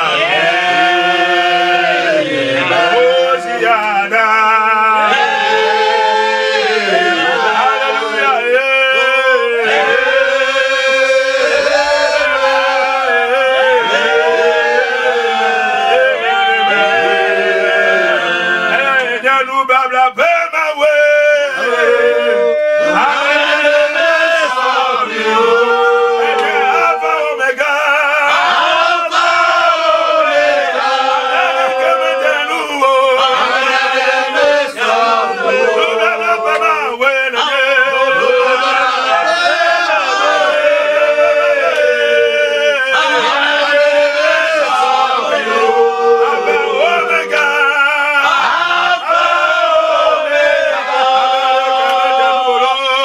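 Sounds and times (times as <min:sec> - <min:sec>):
men chanting a worship song: 0:00.0 - 0:53.0
men singing together: 0:00.0 - 0:53.0.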